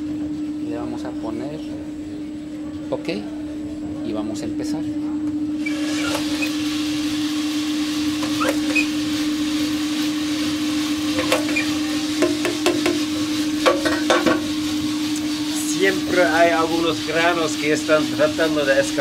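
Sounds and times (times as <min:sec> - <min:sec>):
roaster motor hum: 0:00.0 - 0:19.0
coffee beans tumbling in drum: 0:05.6 - 0:19.0.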